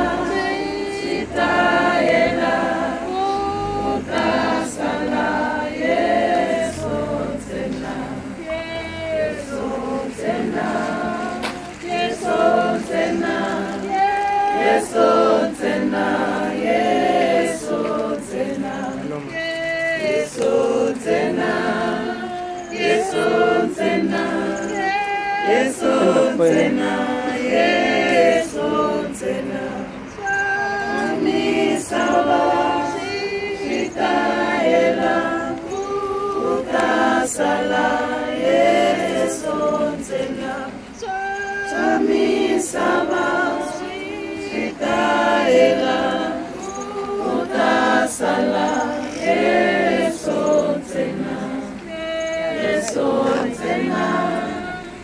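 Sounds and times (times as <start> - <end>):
choir singing unaccompanied: 0.0 - 55.0.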